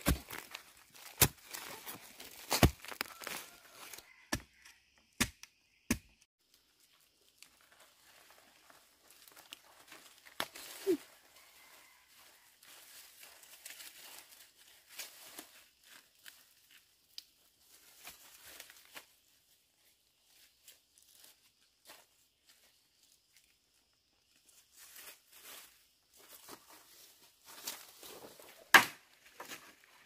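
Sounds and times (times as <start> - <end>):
sharp strikes into soil: 0.0 - 3.4, 4.3 - 6.2
dry leaves rustling and tearing: 0.0 - 4.2, 6.5 - 21.5.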